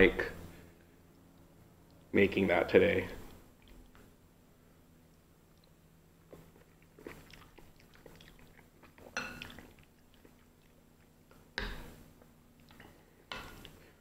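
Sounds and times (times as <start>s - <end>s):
soft chewing: 3.2s - 4.2s, 5.0s - 14.0s.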